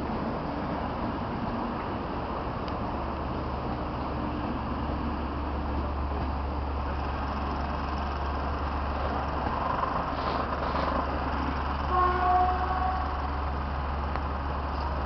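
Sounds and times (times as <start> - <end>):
train coaches rumbling: 0.0 - 15.0.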